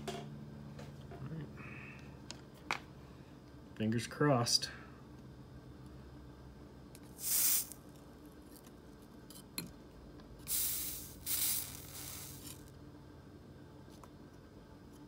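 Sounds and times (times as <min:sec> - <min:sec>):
soldering iron hissing sizzles: 0:07.0 - 0:07.8, 0:10.4 - 0:12.8.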